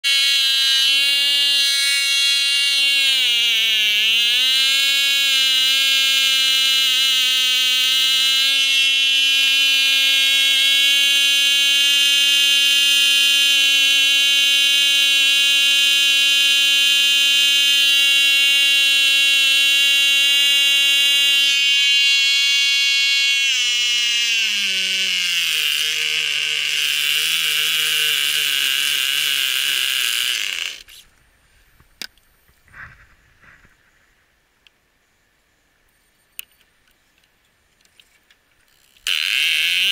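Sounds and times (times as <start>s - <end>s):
small glow engine running: 0.1s - 31.0s, 38.9s - 39.9s.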